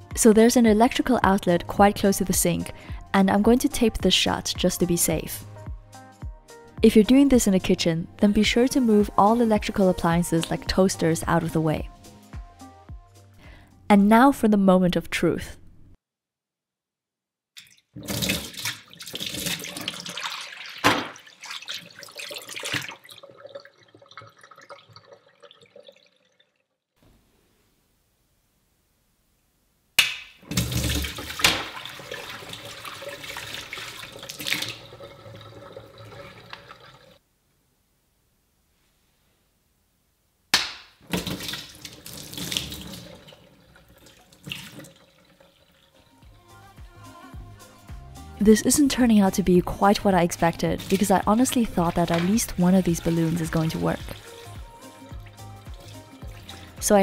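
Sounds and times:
water trickling and dripping: 0:17.6 - 0:26.8, 0:30.4 - 0:37.2, 0:41.1 - 0:46.2, 0:49.9 - 0:57.0
water gushing and splashing: 0:18.0 - 0:26.4, 0:30.4 - 0:37.2, 0:41.1 - 0:46.1, 0:50.4 - 0:56.9
water balloon bursting: 0:20.8 - 0:21.3, 0:30.0 - 0:32.0
sharp slap: 0:40.5 - 0:41.0.

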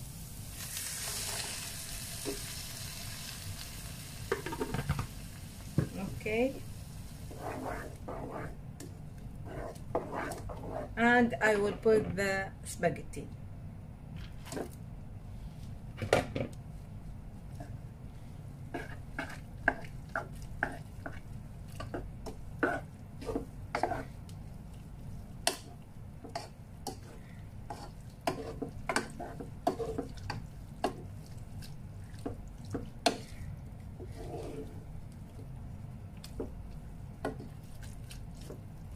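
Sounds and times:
wooden spoon scraping metal pot: 0:07.3 - 0:08.6, 0:09.4 - 0:11.1, 0:22.6 - 0:24.1, 0:26.3 - 0:30.3, 0:34.0 - 0:34.9.

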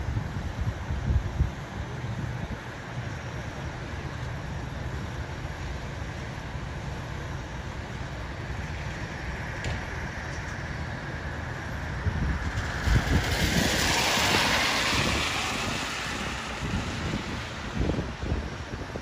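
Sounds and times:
wind buffeting microphone: 0:00.0 - 0:02.7, 0:08.7 - 0:19.0
tyre hiss on wet road: 0:02.7 - 0:19.0.

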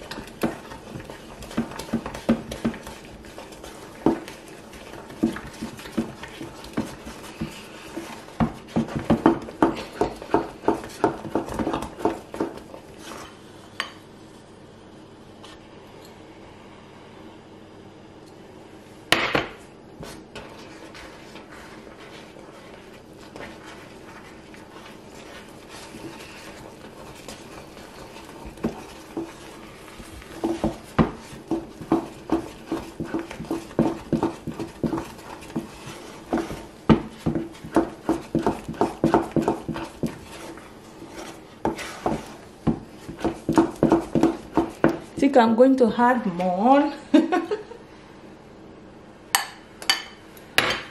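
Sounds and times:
dough slapping: 0:00.0 - 0:13.2, 0:19.1 - 0:45.4.

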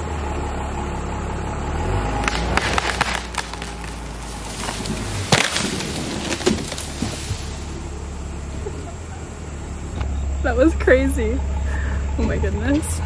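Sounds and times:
truck engine droning: 0:00.0 - 0:13.0
tree trunk cracking and splintering: 0:02.1 - 0:07.8
tree crashing through branches: 0:02.2 - 0:08.0.

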